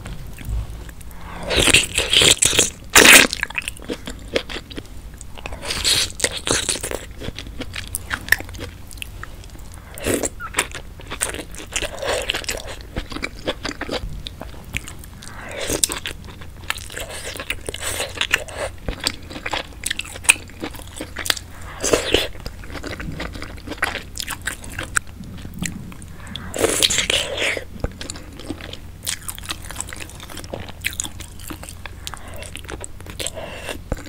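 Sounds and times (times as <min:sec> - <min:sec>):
biting and chewing food: 0:00.0 - 0:34.0.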